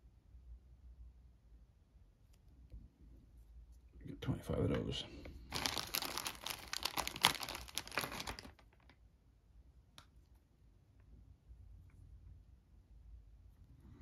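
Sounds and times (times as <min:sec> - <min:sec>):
plastic bag crinkling: 0:05.4 - 0:09.0.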